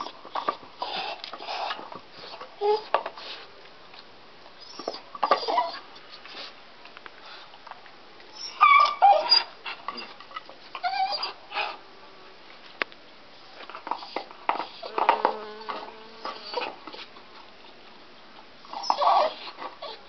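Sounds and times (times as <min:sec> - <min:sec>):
dog whining and crying: 0:02.6 - 0:02.9, 0:04.6 - 0:05.8, 0:08.4 - 0:09.6, 0:10.7 - 0:11.8, 0:14.7 - 0:17.0, 0:18.7 - 0:20.0.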